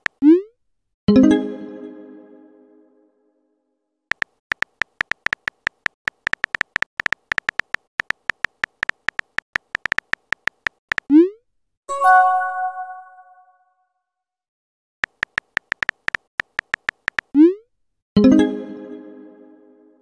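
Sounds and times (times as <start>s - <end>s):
keyboard tap clicks: 4.1s - 11.1s, 15.0s - 17.3s
chime: 11.9s - 13.4s.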